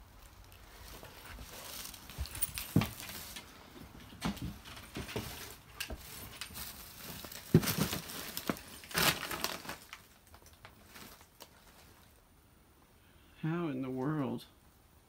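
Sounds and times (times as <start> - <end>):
footsteps crunching paper and cardboard: 0.2 - 12.2.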